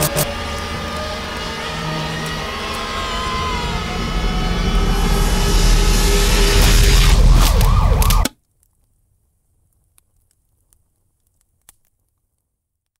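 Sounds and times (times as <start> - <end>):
loud steady rumble: 0.0 - 8.2
siren wailing: 0.0 - 8.3.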